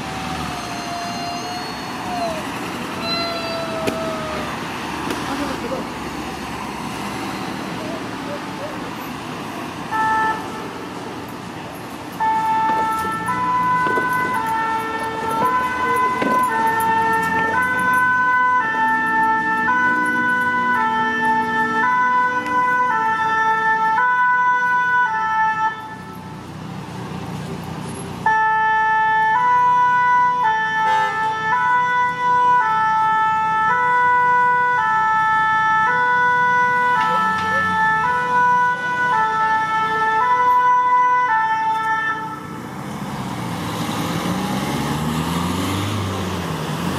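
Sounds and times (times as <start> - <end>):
two-tone ambulance siren: 0.0 - 4.8, 9.9 - 10.8, 12.2 - 26.4, 28.2 - 42.7.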